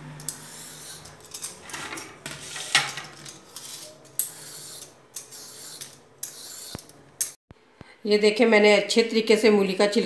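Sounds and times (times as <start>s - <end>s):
peeler scraping radish skin: 0.3s - 1.3s, 3.4s - 7.0s.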